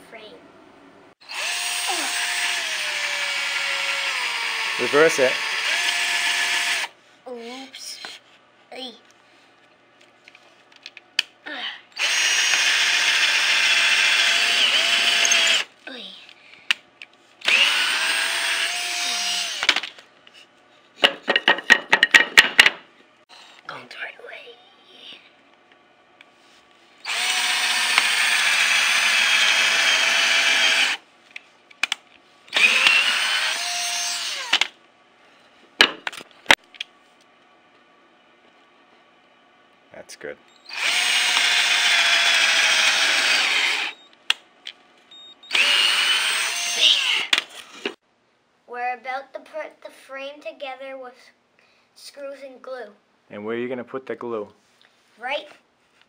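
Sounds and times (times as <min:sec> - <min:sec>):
cordless drill boring into wood: 0:01.2 - 0:07.0, 0:12.0 - 0:15.7, 0:17.4 - 0:19.8, 0:27.0 - 0:31.0, 0:32.5 - 0:34.7, 0:40.6 - 0:44.1, 0:45.5 - 0:47.9.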